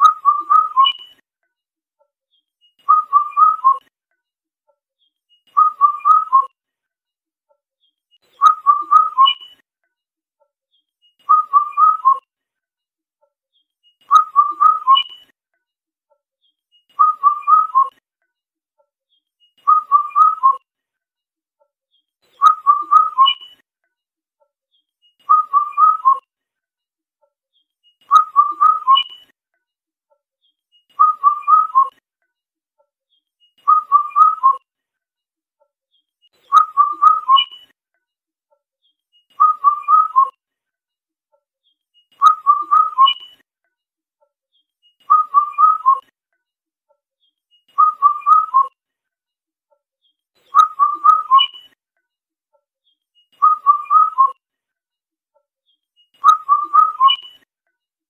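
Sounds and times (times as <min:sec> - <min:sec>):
cuckoo whistled song: 0:00.0 - 0:01.2, 0:02.4 - 0:03.9, 0:05.1 - 0:06.6, 0:08.2 - 0:09.6, 0:10.8 - 0:12.3, 0:13.9 - 0:15.4, 0:16.7 - 0:18.0, 0:19.2 - 0:20.7, 0:22.0 - 0:23.6, 0:24.8 - 0:26.3, 0:27.6 - 0:29.4, 0:30.7 - 0:32.0, 0:33.2 - 0:34.7, 0:36.0 - 0:37.8, 0:38.9 - 0:40.4, 0:41.6 - 0:43.4, 0:44.5 - 0:46.1, 0:47.2 - 0:48.8, 0:50.1 - 0:51.8, 0:52.8 - 0:54.4, 0:55.7 - 0:57.5.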